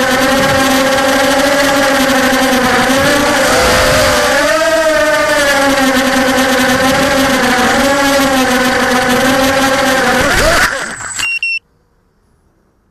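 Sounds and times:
quadcopter motors whining: 0:00.0 - 0:11.6
rushing air: 0:03.0 - 0:04.9.

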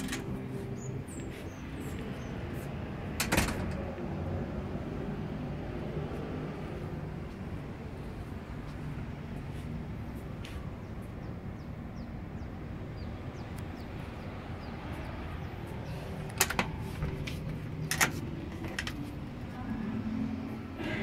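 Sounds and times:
glass door clicks: 0:00.0 - 0:00.4, 0:03.1 - 0:04.0, 0:16.3 - 0:19.1.

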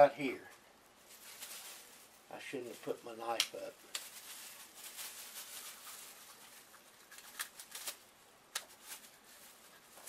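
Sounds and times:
plastic bag crinkling: 0:01.0 - 0:10.0.

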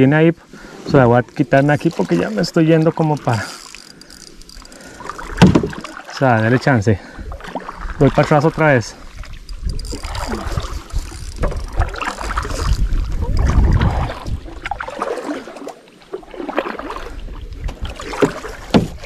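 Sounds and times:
water splashing: 0:01.3 - 0:19.0
knocks against canoe hull: 0:05.4 - 0:05.9, 0:17.7 - 0:19.0
wind buffeting microphone: 0:07.2 - 0:14.9.

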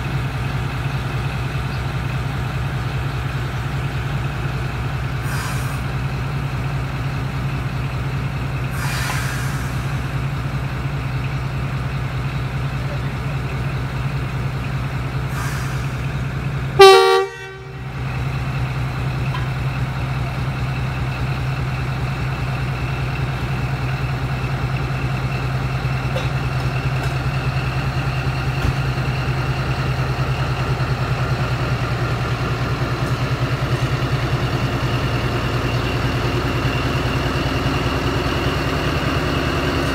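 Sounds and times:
locomotive engine hum: 0:00.0 - 0:39.9
train horn blast: 0:16.8 - 0:17.9.

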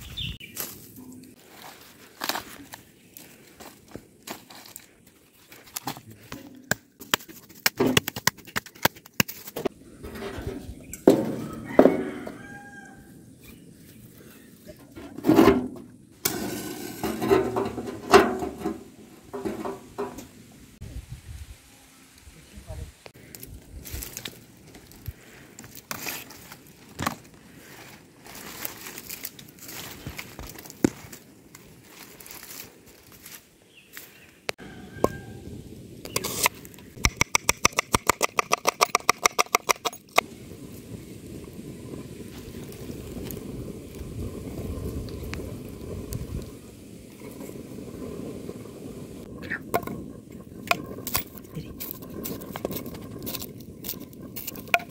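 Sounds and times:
knocks and rattles against metal: 0:15.0 - 0:20.3.

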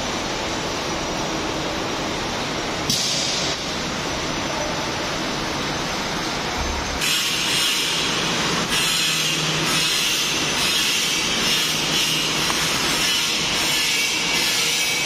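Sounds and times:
workshop noise: 0:00.0 - 0:15.0
welding arc hissing: 0:07.0 - 0:15.0.

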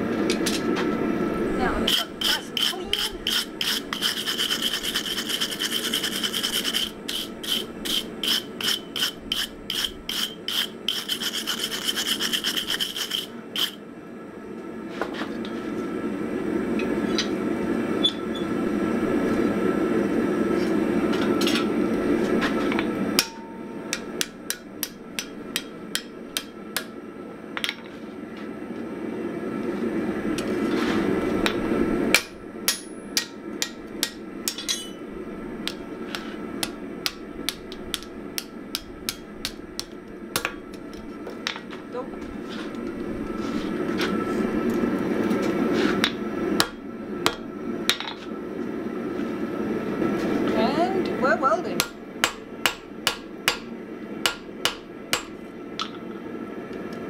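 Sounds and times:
scraping strokes across hot steel: 0:01.6 - 0:13.8, 0:35.7 - 0:37.2, 0:42.4 - 0:46.7.

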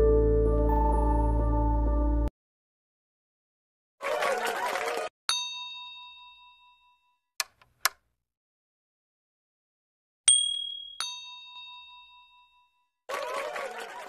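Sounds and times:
bell-like chime dings: 0:05.3 - 0:07.2, 0:10.3 - 0:12.9.

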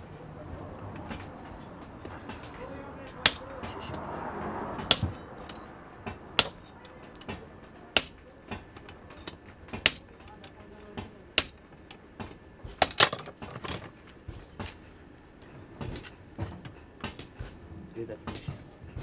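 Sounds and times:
hammer clanging on metal chisel: 0:01.0 - 0:13.9.

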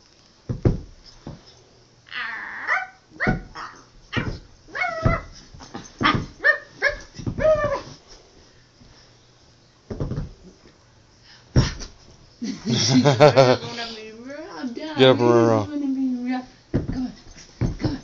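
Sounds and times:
small dog whining: 0:02.1 - 0:08.0
small dog yipping and barking: 0:02.2 - 0:08.0.

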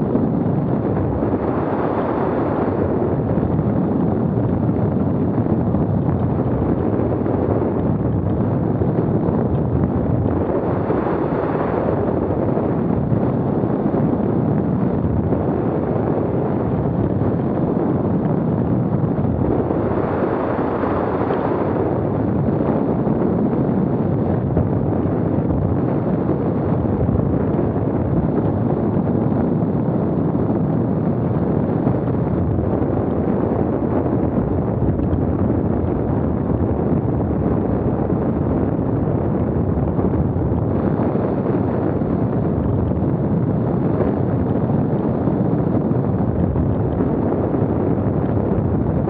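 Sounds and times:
wind buffeting microphone: 0:00.0 - 0:49.0.

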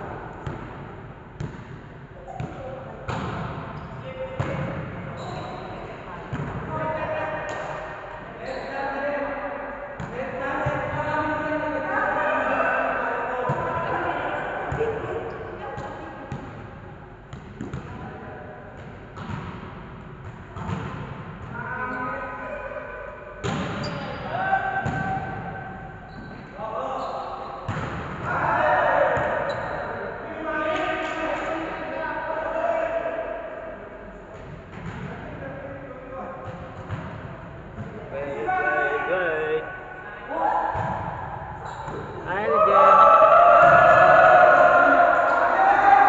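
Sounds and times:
volleyball hits echoing in a hall: 0:00.0 - 0:46.0
players calling out: 0:38.2 - 0:40.8, 0:41.6 - 0:46.0.

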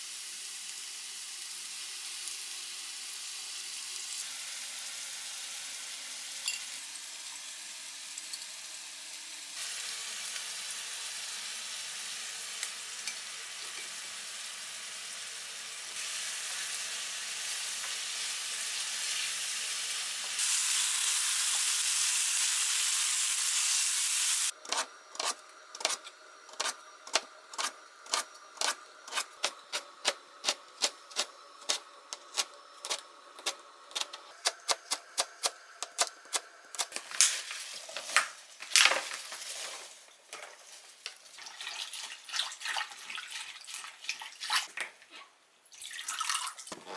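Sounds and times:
sauce sizzling in a frying pan: 0:00.0 - 0:24.6.

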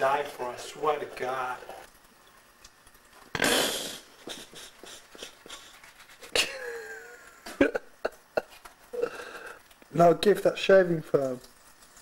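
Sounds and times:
toothbrush scrubbing teeth: 0:03.4 - 0:07.8.

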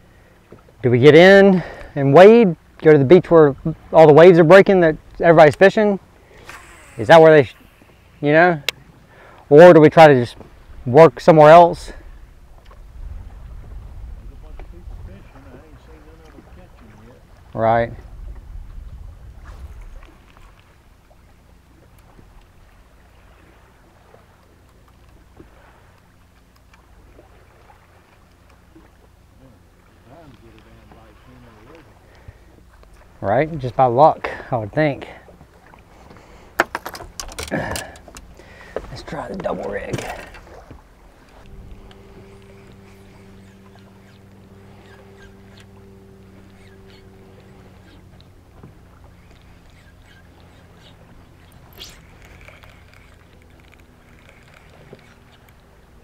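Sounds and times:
distant faint calls and ticks: 0:00.0 - 0:56.0
small boat motor humming: 0:00.0 - 0:56.0
water lapping at hull: 0:00.0 - 0:56.0
low rumble: 0:12.0 - 0:21.0, 0:39.8 - 0:49.4
faint ticks and knocks: 0:36.1 - 0:55.7.

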